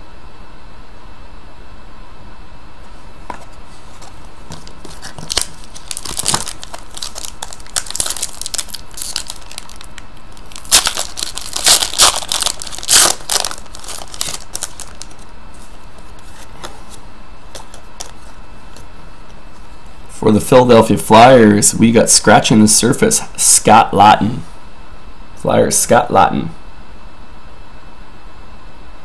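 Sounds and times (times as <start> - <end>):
foil wrapper tearing and crinkling: 4.9 - 15.3.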